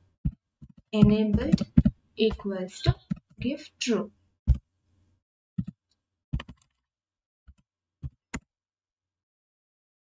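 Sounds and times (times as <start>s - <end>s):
computer keyboard keystrokes: 6.4s - 6.7s.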